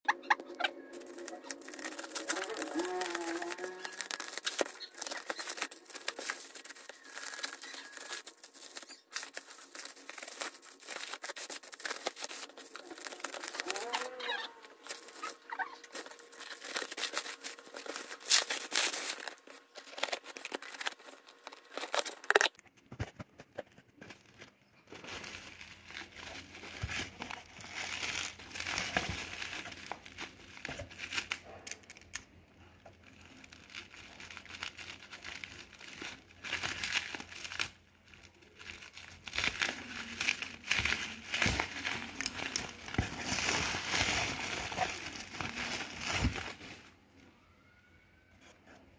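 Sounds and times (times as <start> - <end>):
bubble wrap crinkling: 0.2 - 47.0.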